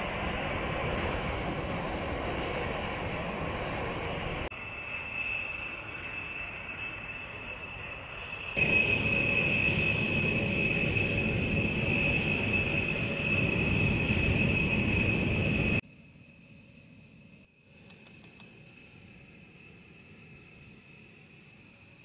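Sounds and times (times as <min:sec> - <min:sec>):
jet engines whining: 0:00.0 - 0:15.8.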